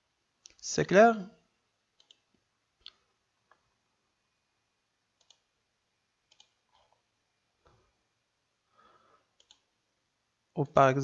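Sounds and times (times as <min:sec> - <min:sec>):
computer mouse clicks: 0:02.0 - 0:03.0, 0:05.2 - 0:05.5, 0:06.3 - 0:07.0, 0:09.4 - 0:09.7.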